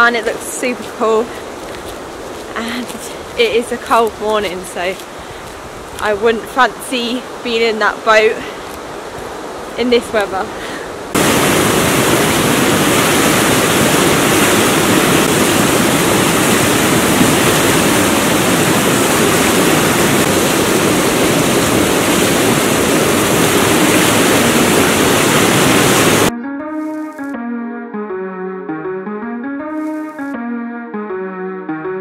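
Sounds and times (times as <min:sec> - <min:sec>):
water rushing over rocks: 0:11.1 - 0:26.3.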